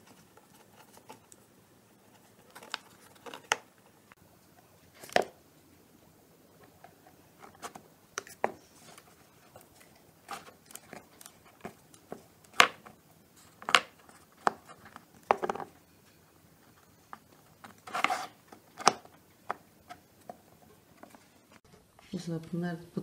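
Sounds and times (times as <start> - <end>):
scraping rustle: 0.0 - 4.0, 17.6 - 18.6.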